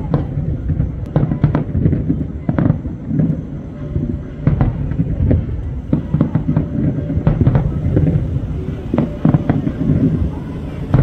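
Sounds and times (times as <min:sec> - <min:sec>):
firework shells bursting: 0:00.0 - 0:11.0
low rumble of fireworks: 0:00.0 - 0:11.0.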